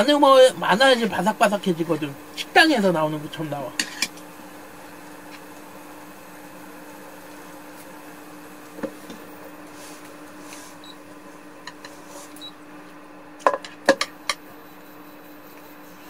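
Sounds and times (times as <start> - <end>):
steady low hum: 0.0 - 16.0
utensils knocking on cookware: 13.5 - 14.4.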